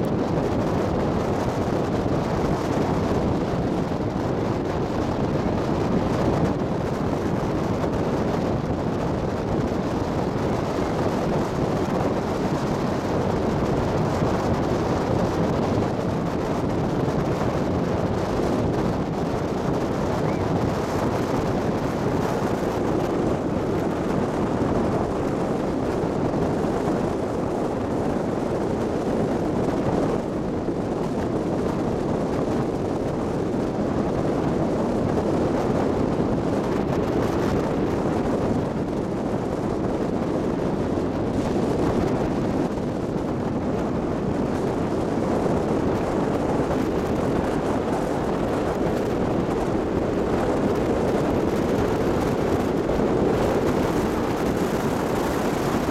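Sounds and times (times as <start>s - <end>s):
ferry engine rumbling: 0.0s - 25.4s
wind buffeting microphone: 0.0s - 55.9s.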